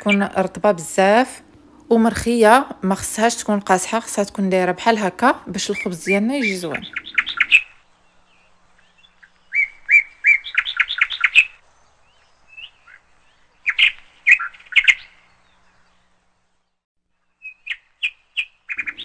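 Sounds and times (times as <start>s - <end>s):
bird chirping: 5.4s - 19.0s.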